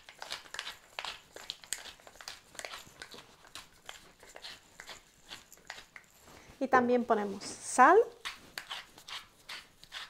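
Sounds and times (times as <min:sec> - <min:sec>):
pepper mill grinding: 0:00.0 - 0:06.1.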